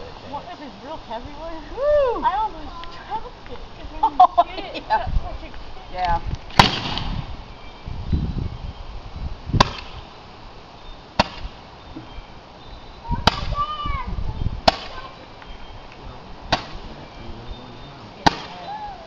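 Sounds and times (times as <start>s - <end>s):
roman candle firing pops: 6.5s - 7.2s, 14.6s - 15.0s, 15.9s - 17.0s, 18.2s - 18.6s.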